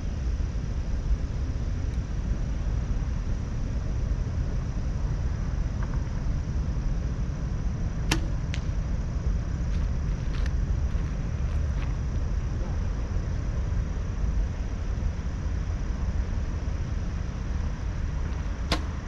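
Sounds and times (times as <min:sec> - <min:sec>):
steady low rumble: 0:00.0 - 0:19.0
bowstring snap: 0:08.0 - 0:08.8, 0:18.6 - 0:19.0.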